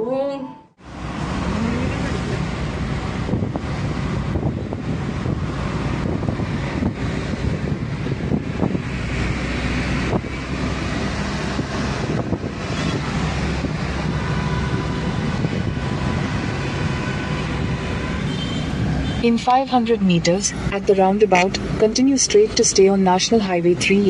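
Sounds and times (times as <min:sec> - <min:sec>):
car engine and tyre rumble: 0:00.8 - 0:24.0
wind on microphone: 0:02.4 - 0:19.2.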